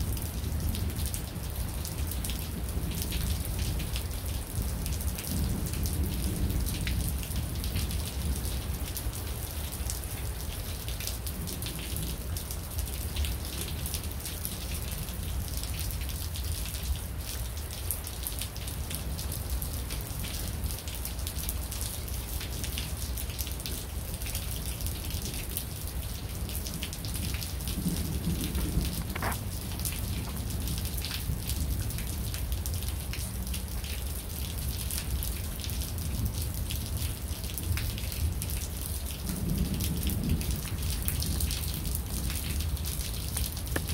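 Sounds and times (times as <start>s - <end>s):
raindrops ticking on surface: 0.0s - 43.9s
low thunder rumble: 26.7s - 31.9s.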